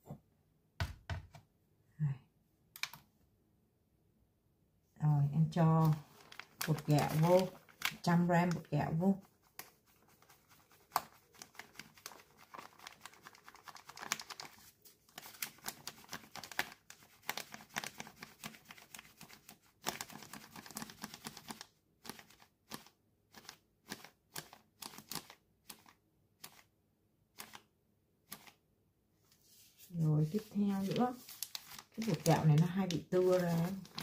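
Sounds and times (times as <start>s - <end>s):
plastic packet crinkling: 5.8s - 8.7s, 9.6s - 26.6s, 30.3s - 34.0s.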